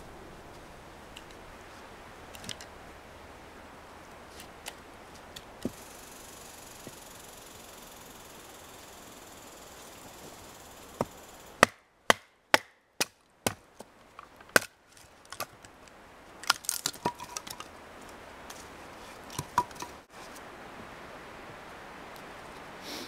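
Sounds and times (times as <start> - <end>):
wood cracking: 11.6 - 17.7
wood pieces knocking: 16.4 - 17.7, 19.3 - 20.0.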